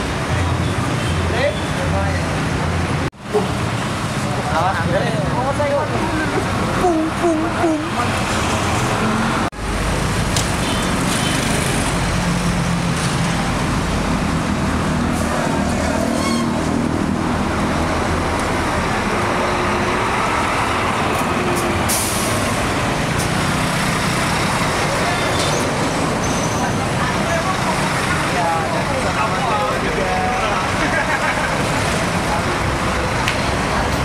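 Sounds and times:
bus diesel engine passing: 2.0s - 34.0s.

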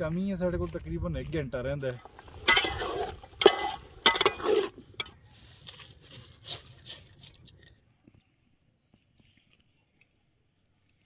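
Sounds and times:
metal spoon scraping a pot: 2.0s - 5.2s.

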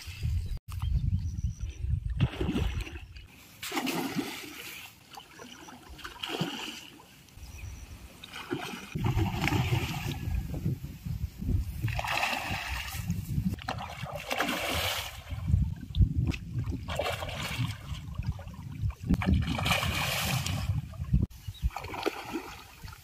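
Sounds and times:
fish splashing in water: 3.6s - 7.0s, 13.6s - 15.5s, 21.7s - 23.0s.

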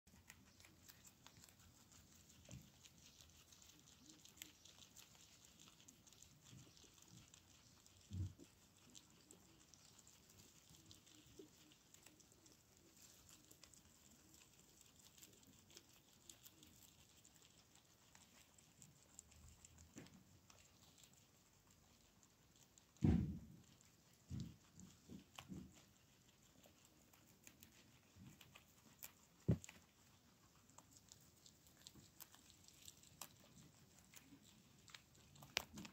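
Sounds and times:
guinea pigs chewing greens: 0.0s - 35.9s
low thump: 23.0s - 23.6s.

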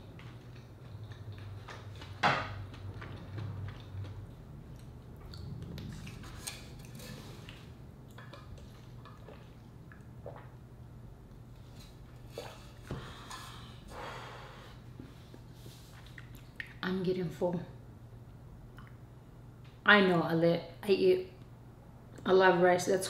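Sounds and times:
chewing and swallowing: 0.0s - 10.6s, 16.0s - 16.8s
sipping from water bottle: 11.7s - 14.5s.

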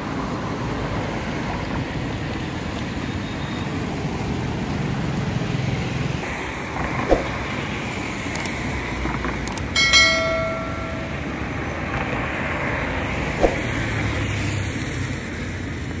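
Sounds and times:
road traffic passing: 0.0s - 16.0s
bell-like ding: 9.8s - 11.5s.

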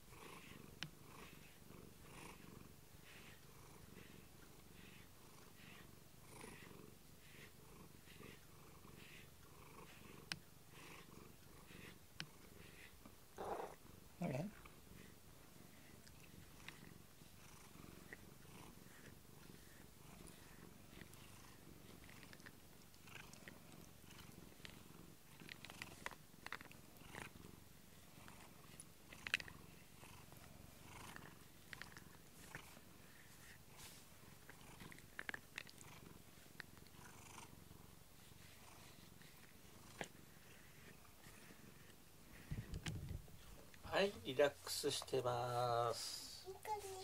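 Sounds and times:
cat purring: 0.0s - 47.0s
soft scratchy clicks of brush: 31.1s - 37.0s.

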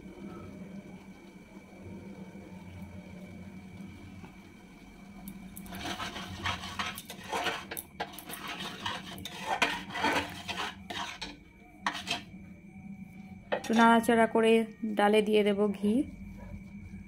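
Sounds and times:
metal spatula scraping a pan: 5.6s - 12.3s, 13.5s - 14.0s.

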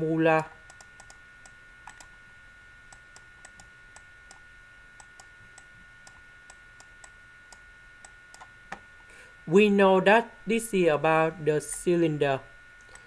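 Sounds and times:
faint electrical whine: 0.0s - 13.0s
computer mouse clicks: 0.7s - 2.1s, 2.9s - 4.4s.

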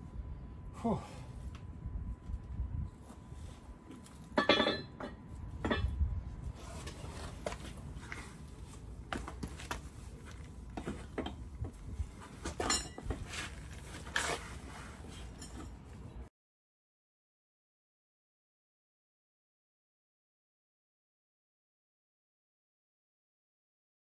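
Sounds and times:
metal tools and bolts clinking: 4.2s - 6.0s, 12.4s - 13.2s, 15.1s - 15.9s.

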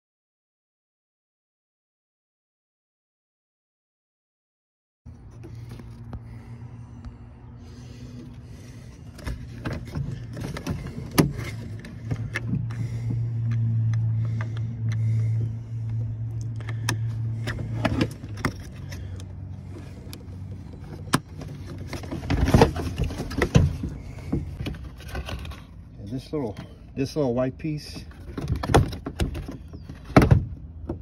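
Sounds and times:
steady low hum: 5.1s - 27.1s.

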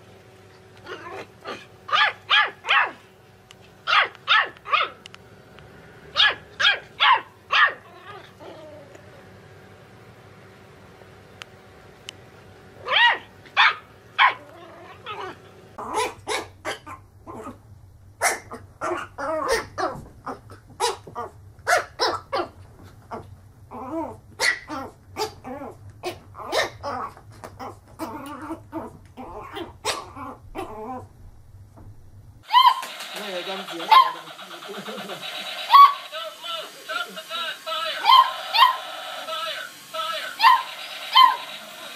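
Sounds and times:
puppy yapping: 0.8s - 3.0s, 3.9s - 5.0s, 6.2s - 8.8s, 12.8s - 17.6s, 18.2s - 31.1s, 32.5s - 33.0s, 33.9s - 34.2s, 35.7s - 36.0s, 38.0s - 38.9s, 40.4s - 41.5s
small dog barking: 0.9s - 3.0s, 3.9s - 5.0s, 6.2s - 8.3s, 12.8s - 17.0s, 18.2s - 20.0s, 20.8s - 22.5s, 24.4s - 25.4s, 26.0s - 27.0s, 29.4s - 30.7s, 32.5s - 32.9s, 33.9s - 34.2s, 35.7s - 36.0s, 38.0s - 38.8s, 40.4s - 41.5s.

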